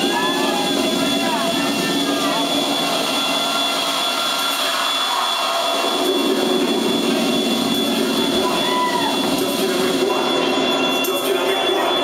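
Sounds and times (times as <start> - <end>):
crowd voices: 0.0 - 12.0
droning electronic music: 0.0 - 12.0.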